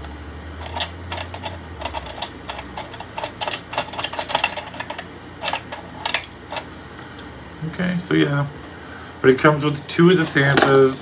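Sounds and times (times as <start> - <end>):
plastic toy parts clattering: 0.6 - 6.6.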